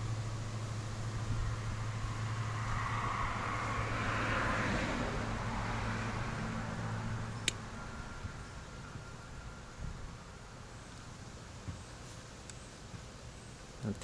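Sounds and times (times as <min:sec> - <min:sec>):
vehicle passing by: 0:00.0 - 0:09.7.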